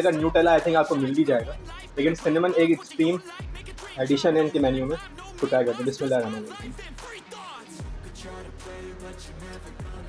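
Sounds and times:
background music with bass line: 0:00.0 - 0:10.0.

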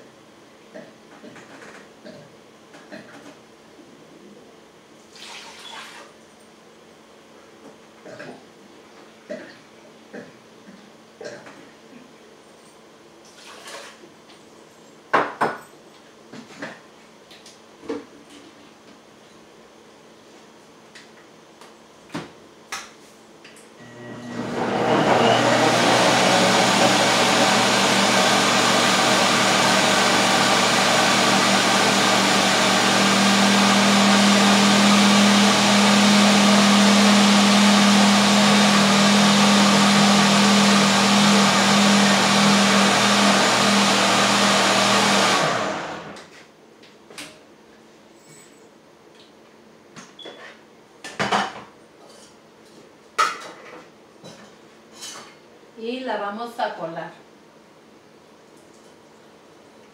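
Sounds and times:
blender running: 0:23.8 - 0:46.3.

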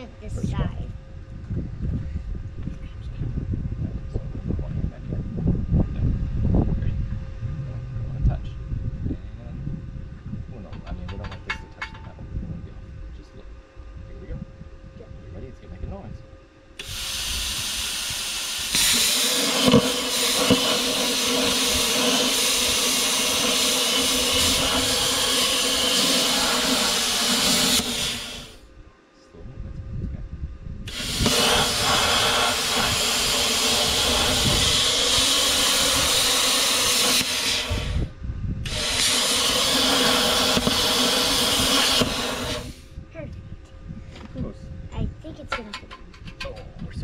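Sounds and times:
plasma cutter hissing: 0:16.8 - 0:28.6, 0:30.9 - 0:42.8.

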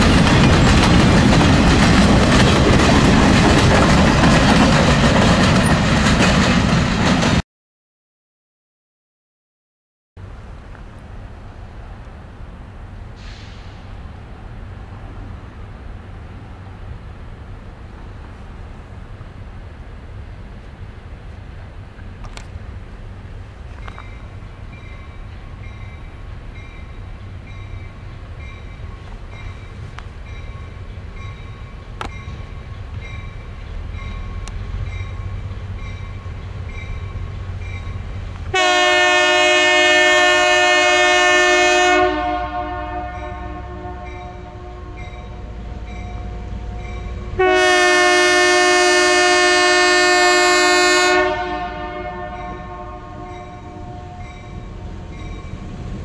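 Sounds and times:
diesel engines rumbling: 0:10.2 - 0:56.0
locomotive air horn blasts: 0:38.5 - 0:54.6.

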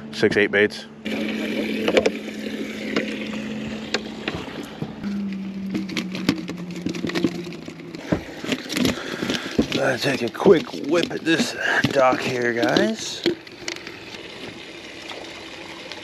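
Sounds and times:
dip net clicks and knocks: 0:05.3 - 0:14.2.

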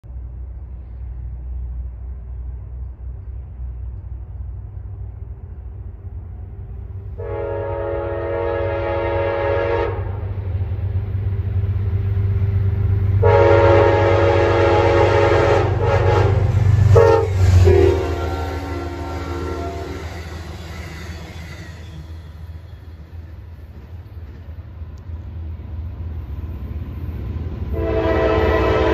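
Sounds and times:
train rumble: 0:00.0 - 0:28.9
locomotive horn blasts: 0:07.2 - 0:10.4, 0:13.2 - 0:20.3, 0:27.7 - 0:28.9.

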